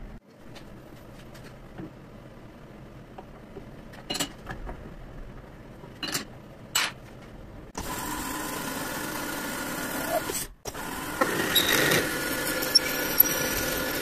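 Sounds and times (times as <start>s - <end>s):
machine running steadily: 7.5s - 14.0s.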